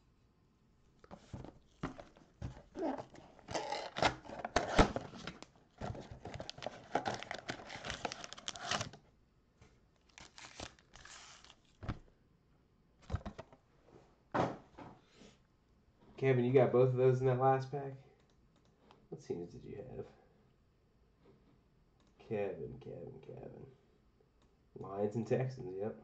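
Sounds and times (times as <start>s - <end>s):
soft rustles and clicks: 1.0s - 9.0s
cardboard being torn open: 2.7s - 9.0s, 10.1s - 11.7s.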